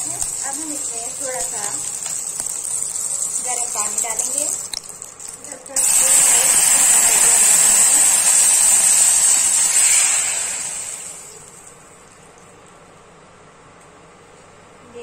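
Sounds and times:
water pouring into pan: 0:00.0 - 0:11.7
hot oil sizzling: 0:00.0 - 0:12.2
hiss of flashing steam: 0:05.8 - 0:11.6.

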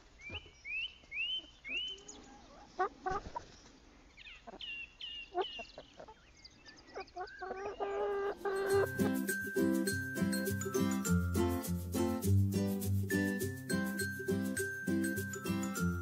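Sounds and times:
hens clucking and squawking: 0:01.4 - 0:03.6, 0:04.4 - 0:06.2, 0:07.0 - 0:09.2.

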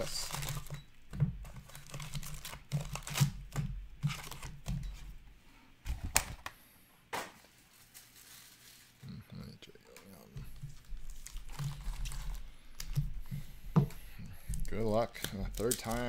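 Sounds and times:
wrapped card packs crinkling: 0:00.0 - 0:00.8, 0:01.5 - 0:03.4, 0:04.1 - 0:04.6, 0:07.4 - 0:13.0, 0:14.2 - 0:16.0.

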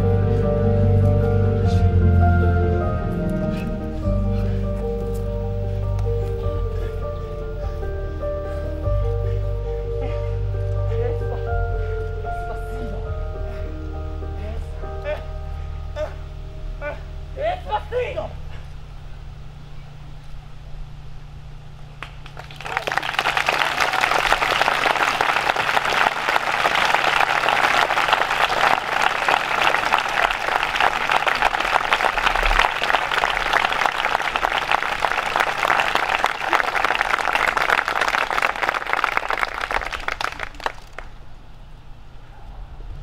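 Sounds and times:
audience applauding: 0:22.0 - 0:41.2.

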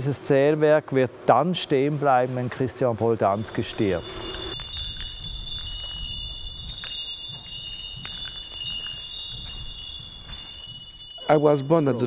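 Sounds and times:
wind bells ringing: 0:03.3 - 0:12.0.

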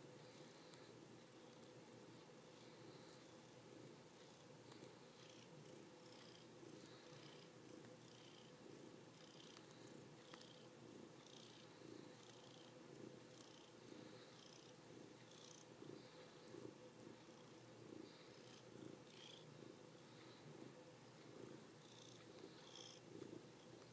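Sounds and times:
cat purring: 0:00.0 - 0:23.9.

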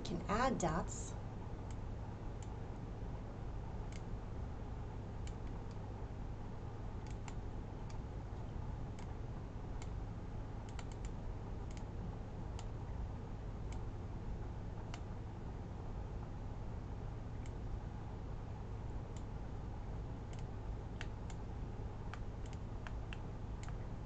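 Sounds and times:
steady low hum: 0:00.0 - 0:24.0
computer mouse clicking: 0:03.9 - 0:04.1, 0:07.0 - 0:08.0, 0:10.6 - 0:11.9, 0:20.3 - 0:21.4, 0:22.1 - 0:23.8.

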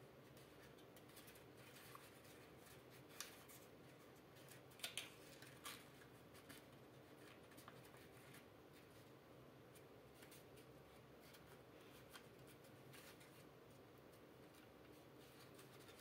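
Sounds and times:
sharp paper crackles: 0:00.2 - 0:08.5, 0:14.4 - 0:16.0
paper rustling and crinkling: 0:00.2 - 0:09.1, 0:09.7 - 0:16.0.

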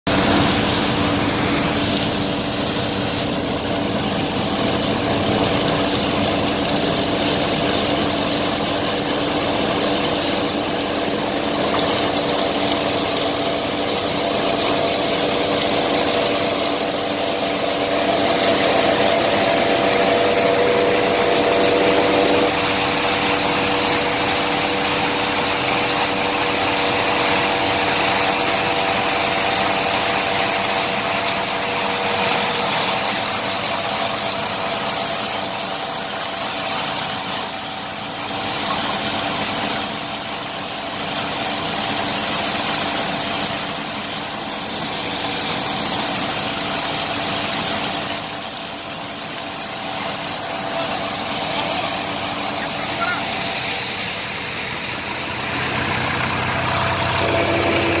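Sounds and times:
combine thresher running: 0:00.1 - 0:58.0.

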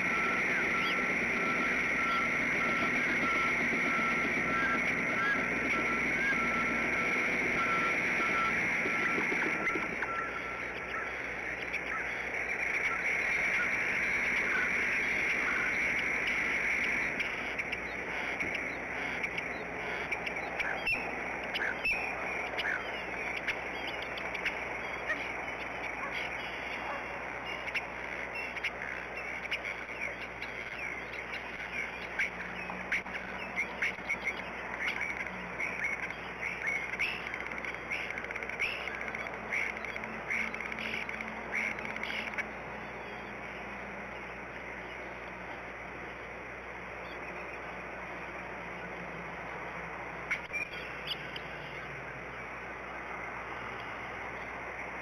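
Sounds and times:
bird chirps and calls: 0:17.0 - 0:26.9.

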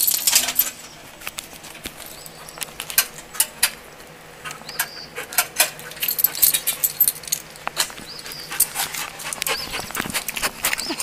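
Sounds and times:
jingling and clicking: 0:00.0 - 0:00.9, 0:05.8 - 0:07.9.

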